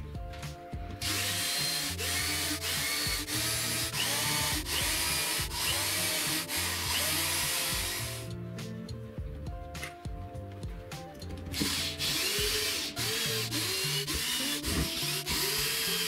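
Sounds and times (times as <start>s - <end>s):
cordless drill boring into wood: 1.0s - 8.3s, 11.6s - 16.0s.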